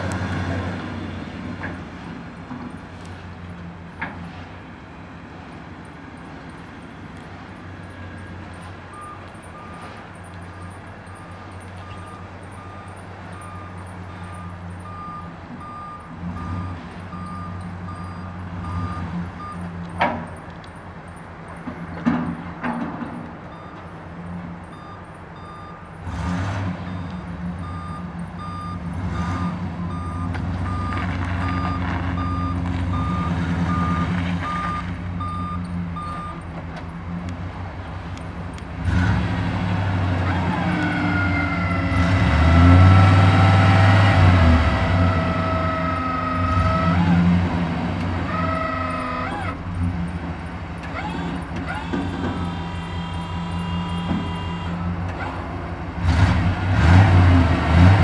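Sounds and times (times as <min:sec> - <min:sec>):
backup alarm beeps: 0:24.7 - 0:25.8, 0:26.9 - 0:36.4.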